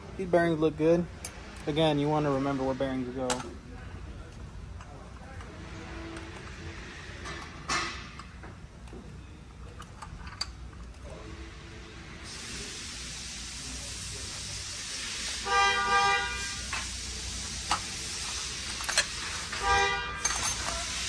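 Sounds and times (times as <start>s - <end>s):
steady hiss: 11.1s - 21.0s
car horn honking: 15.4s - 16.8s, 19.5s - 20.6s.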